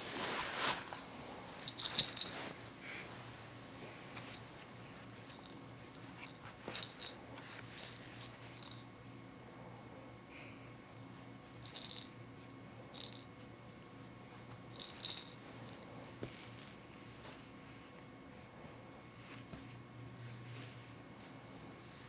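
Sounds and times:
baby toys rattling: 1.6 - 2.4, 5.3 - 8.9, 11.6 - 12.1, 13.0 - 13.2, 14.7 - 16.8.

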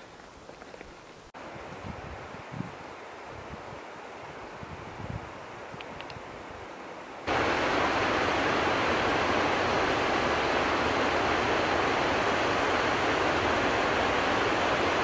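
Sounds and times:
mountain torrent rushing over stones: 7.2 - 15.0.

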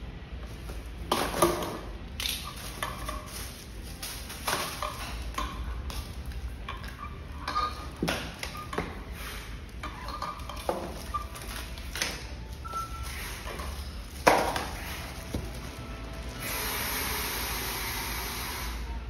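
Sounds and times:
plastic film crinkling: 2.2 - 6.6, 10.4 - 16.4.

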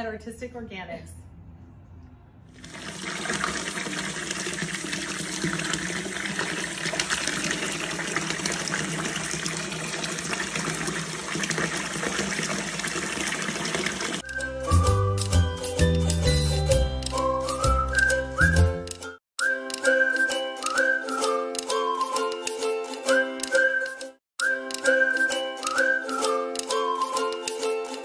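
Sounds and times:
tap water gushing into bathtub: 2.6 - 14.2
music: 14.2 - 28.0.

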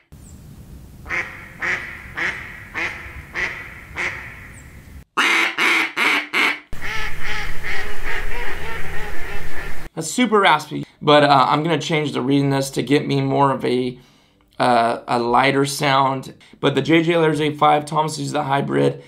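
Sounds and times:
duck call quacks: 1.1 - 4.4, 5.2 - 9.9
ducks quacking: 1.1 - 4.6, 5.2 - 9.9.

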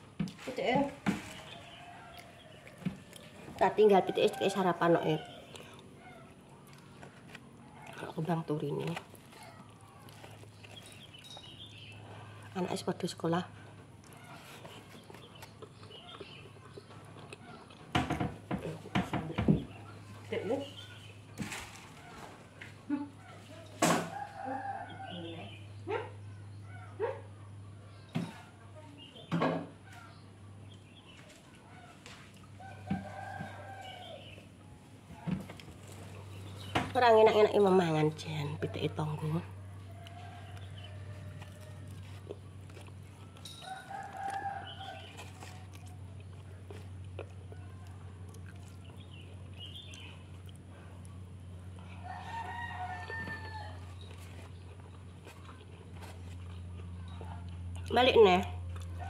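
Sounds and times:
rooster crowing: 1.2 - 5.5, 24.0 - 25.6, 32.6 - 34.5, 39.5 - 42.2, 43.2 - 45.7, 51.8 - 54.0
soft clicks of eating: 1.5 - 3.8, 5.2 - 12.4, 13.6 - 17.9, 39.8 - 59.0.

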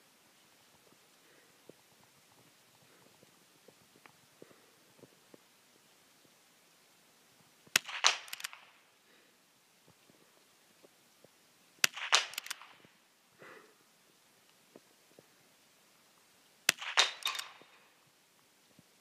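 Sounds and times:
rifle bolt clicks and clatter: 7.8 - 8.7, 11.8 - 12.9, 16.7 - 17.8
rifle shots: 7.8 - 8.8, 11.8 - 12.9, 16.7 - 17.8.

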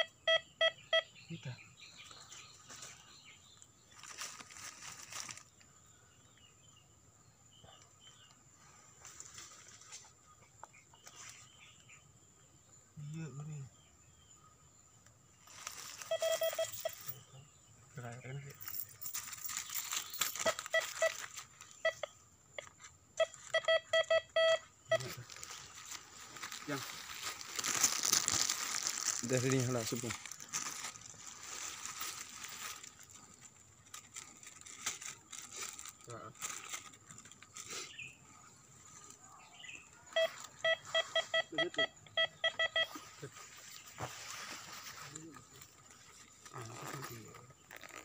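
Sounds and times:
metal detector beeping: 0.0 - 1.2, 15.9 - 17.2, 20.3 - 25.3, 40.1 - 43.1.

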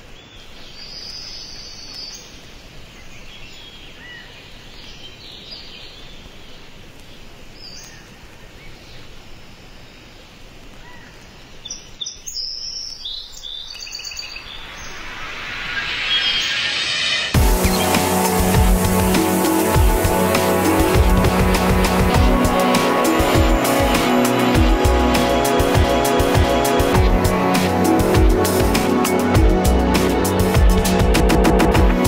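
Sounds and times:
bird chirps: 10.8 - 18.4
steady noise bed: 14.3 - 32.0.

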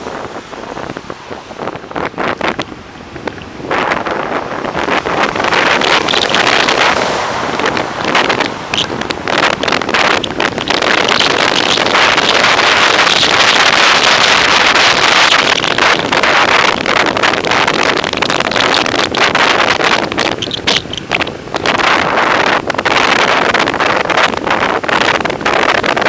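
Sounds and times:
road noise: 0.0 - 26.0
wind rushing over microphone: 0.0 - 26.0.

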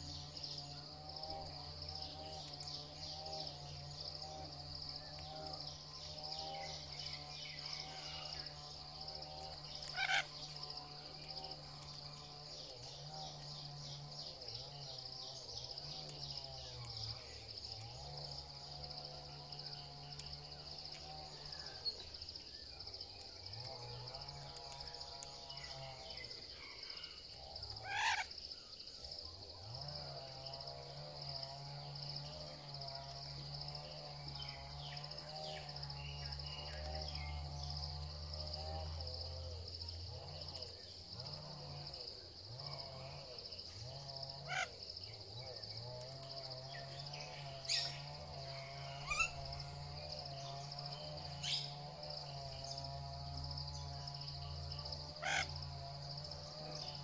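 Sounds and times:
insects droning: 0.0 - 57.0
loud bird call: 48.9 - 49.5.

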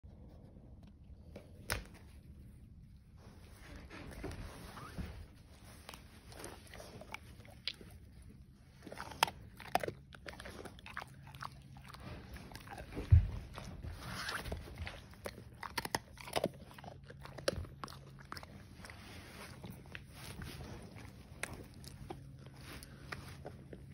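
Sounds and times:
dog crunching food: 5.7 - 23.9.

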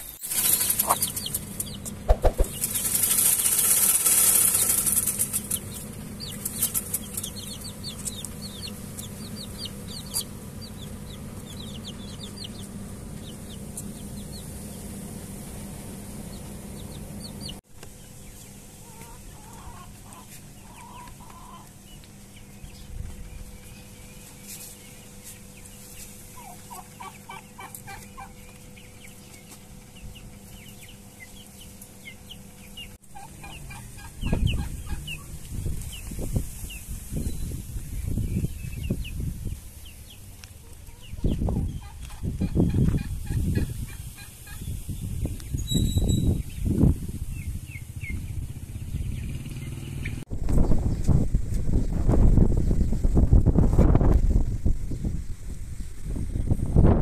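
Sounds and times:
low hum: 0.0 - 18.9
chickens clucking: 0.4 - 23.2, 25.2 - 45.5.

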